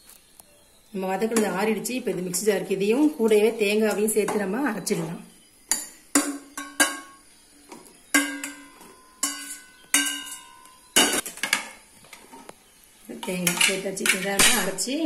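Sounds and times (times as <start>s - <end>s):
steel spoon clinking on metal pots: 5.7s - 7.2s, 8.1s - 11.7s, 13.2s - 14.8s.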